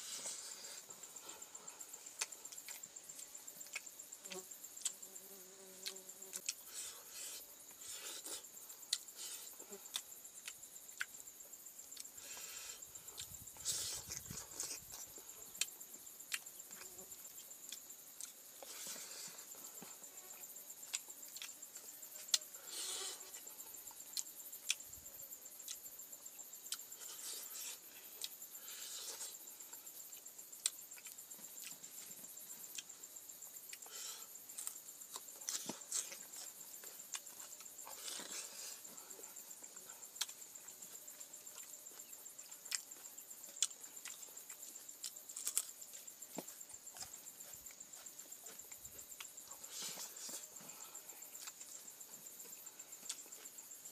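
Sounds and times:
chewing and lip smacks: 39.2 - 50.5.

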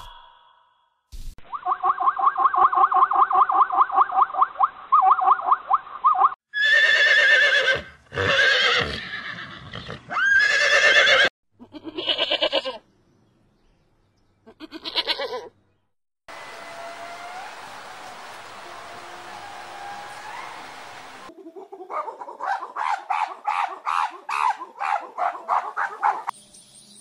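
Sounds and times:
faint outdoor background: 0.0 - 27.0
goat bleating: 10.2 - 12.8, 14.5 - 15.5
zebra yelping barks: 21.9 - 26.3.

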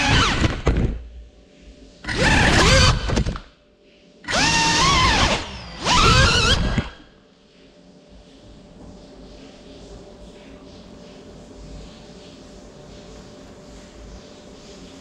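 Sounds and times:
drone motors whining: 0.0 - 0.7, 2.0 - 3.4, 4.2 - 7.1.

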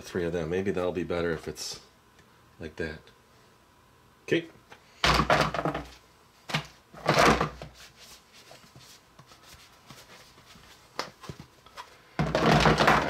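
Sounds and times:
plastic and cardboard rustling: 5.5 - 13.0.

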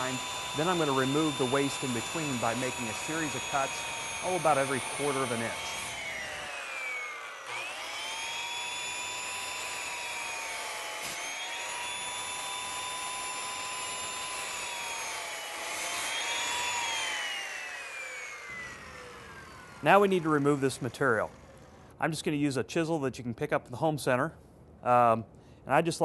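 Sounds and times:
circular saw cutting wood: 0.0 - 22.0.

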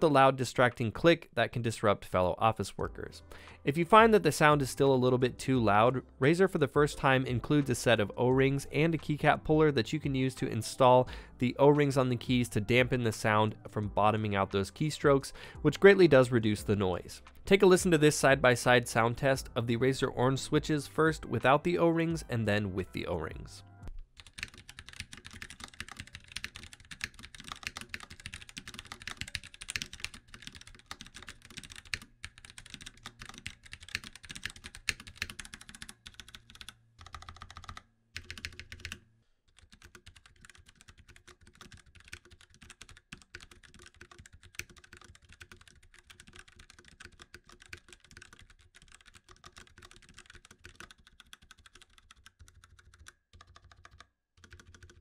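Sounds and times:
keyboard typing: 24.2 - 55.0.

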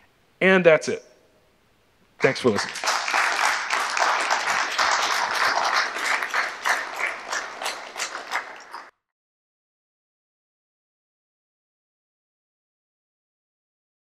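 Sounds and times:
audience applauding: 2.2 - 8.9.

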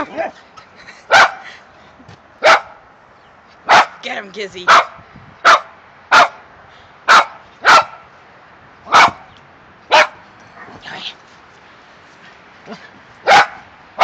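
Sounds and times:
small dog barking: 2.4 - 2.8, 3.7 - 4.0, 4.7 - 6.4, 7.1 - 8.1, 8.9 - 9.3, 9.9 - 10.2, 13.2 - 13.7.

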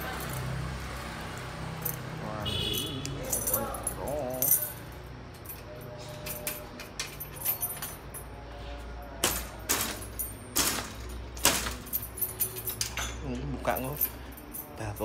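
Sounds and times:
keys jangling: 2.7 - 8.4, 9.1 - 15.0
loud metal clacks: 9.2 - 13.2.

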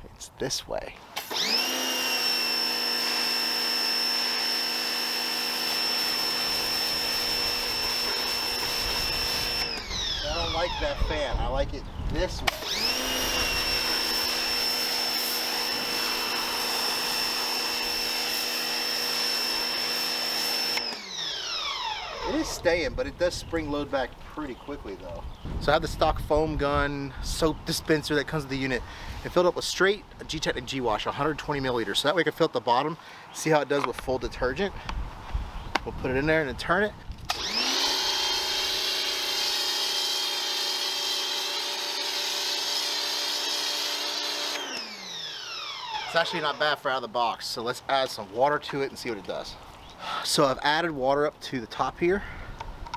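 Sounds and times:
pressure washer motor whine: 1.2 - 11.3, 12.4 - 22.8, 37.3 - 46.8
foam gun spraying hiss: 13.2 - 20.8.

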